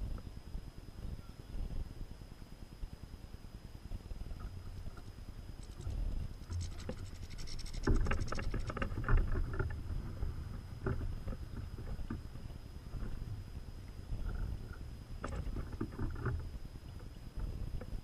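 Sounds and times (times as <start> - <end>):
wind on microphone: 3.8 - 18.0
birds scrabbling at plastic feeder: 4.4 - 10.1.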